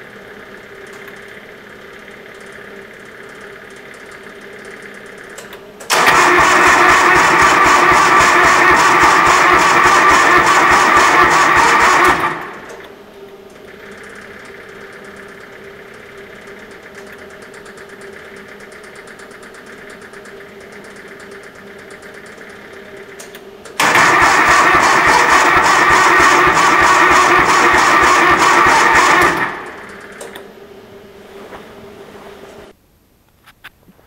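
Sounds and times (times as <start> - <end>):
starter cranking diesel engine: 2.4 - 12.9, 13.6 - 30.3
faint steady hum: 29.5 - 34.0.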